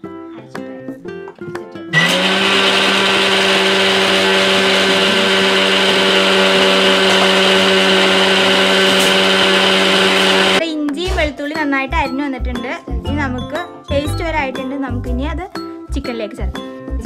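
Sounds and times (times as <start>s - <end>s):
mixer grinder running: 1.9s - 10.6s.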